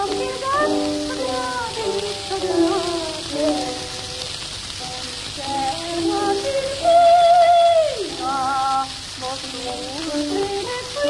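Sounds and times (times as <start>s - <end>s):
record surface hiss and crackle: 0.0s - 11.0s
woman singing with vibrato: 0.0s - 11.0s.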